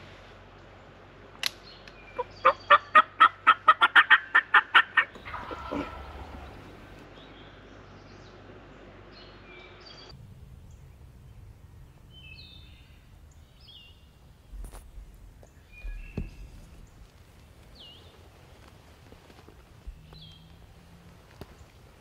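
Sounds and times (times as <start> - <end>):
wild turkey calling: 2.1 - 7.1.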